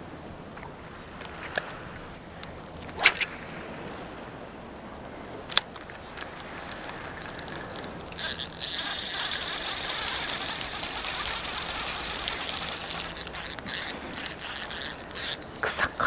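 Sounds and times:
fishing reel drag buzzing: 6.5s - 15.7s.

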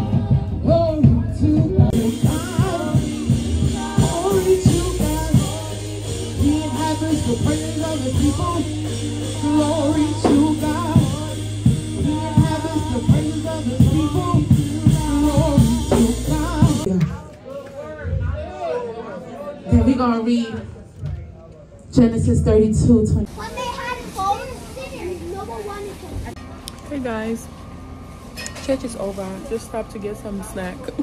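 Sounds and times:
band with bass and drums: 0.0s - 17.2s
voices singing worship music: 0.0s - 17.4s.

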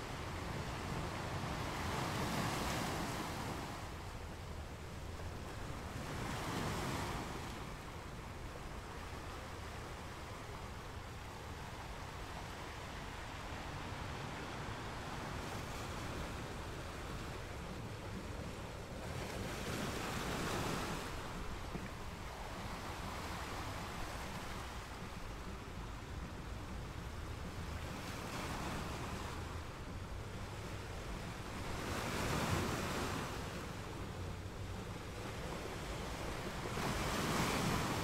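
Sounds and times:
waves breaking on beach: 0.0s - 38.0s.

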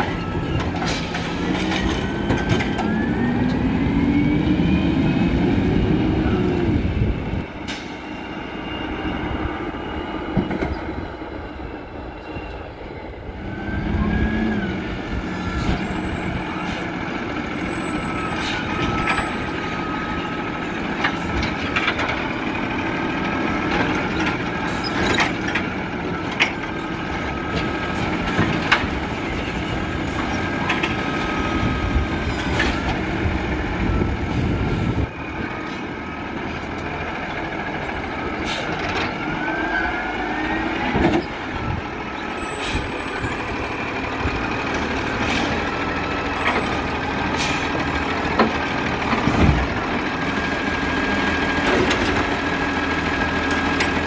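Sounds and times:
diesel truck engine running: 13.2s - 54.0s.

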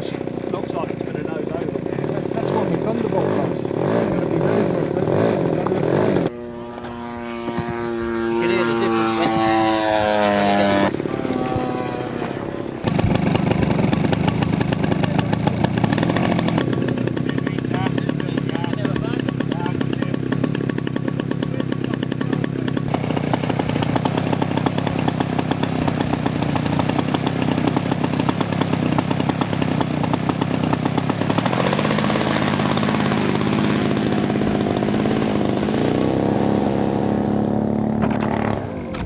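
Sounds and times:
model airplane engine running: 0.0s - 39.0s.

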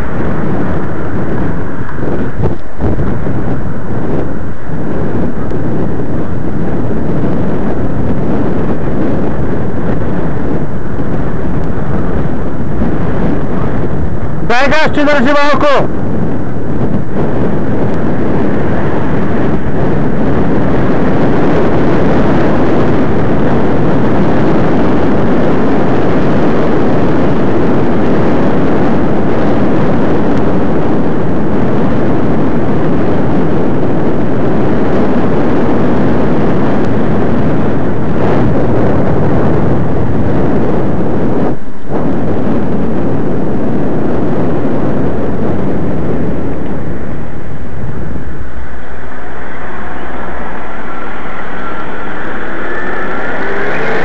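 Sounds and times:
wind buffeting microphone: 0.0s - 54.0s.

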